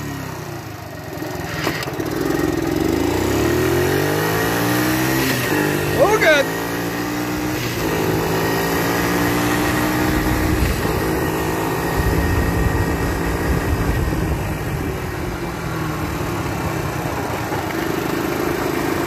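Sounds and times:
small atv engine running: 0.0 - 19.0
wind: 0.0 - 19.0
tyres rumbling on pavement: 7.6 - 19.0.

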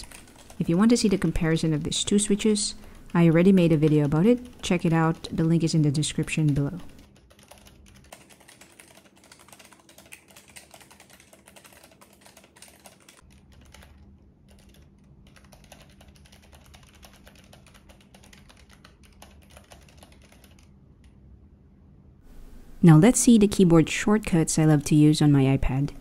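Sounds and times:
fast keyboard typing clicks: 0.0 - 20.7.

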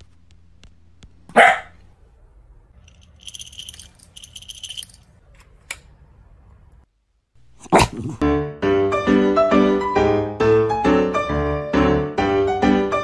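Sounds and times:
small dog barking: 1.3 - 1.8
kibble rattling in metal cup: 2.9 - 5.0.

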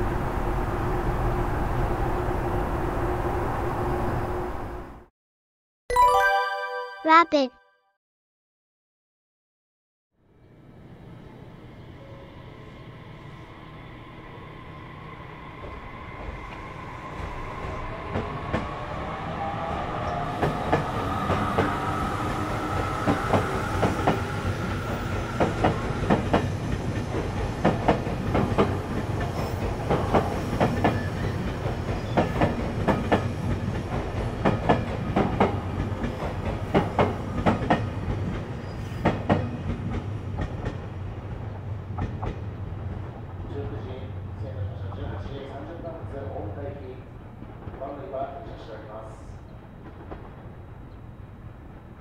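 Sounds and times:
train wheels clickety-clack: 20.4 - 43.2, 47.4 - 49.0, 49.8 - 50.5.

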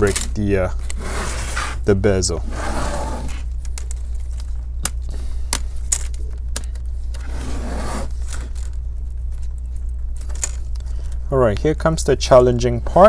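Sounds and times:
steady low hum: 0.0 - 13.0
plastic scraping rub: 0.8 - 3.5, 7.1 - 8.7.

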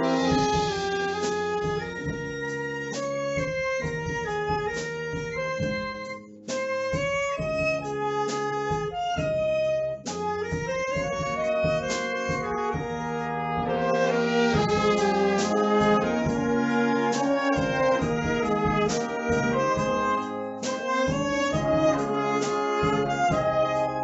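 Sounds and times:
sharp drum accents: 0.0 - 2.4, 10.1 - 23.8
wind band playing: 0.0 - 24.0.

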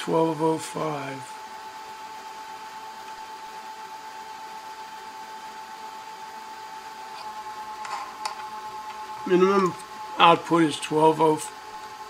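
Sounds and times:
high fan whine: 0.0 - 12.0.

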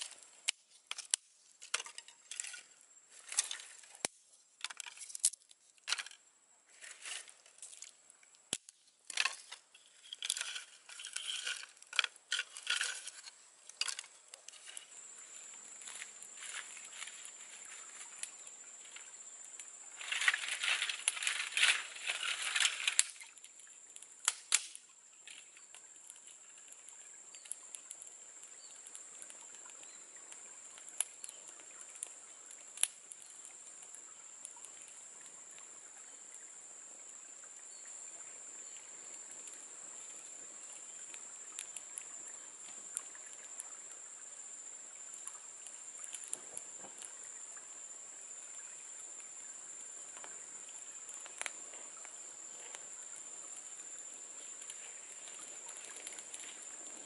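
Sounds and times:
campfire crackling: 0.0 - 57.0
dry twigs snapping: 20.0 - 23.3, 24.2 - 25.5.

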